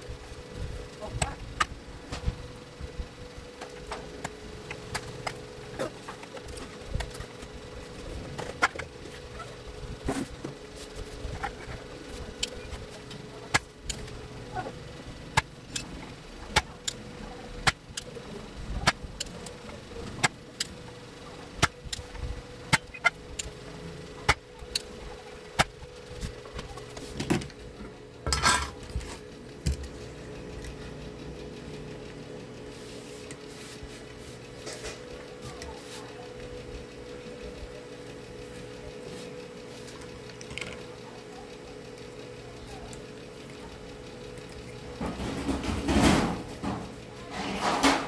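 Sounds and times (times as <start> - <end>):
faint steady hum: 0.0 - 48.0
desoldering pump clicks: 15.2 - 23.6, 24.2 - 30.9.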